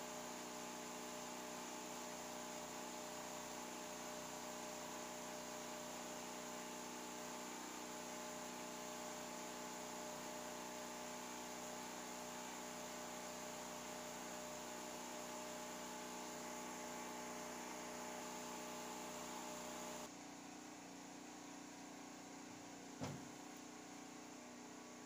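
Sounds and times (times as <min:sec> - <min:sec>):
electrical hum: 0:14.0 - 0:20.1.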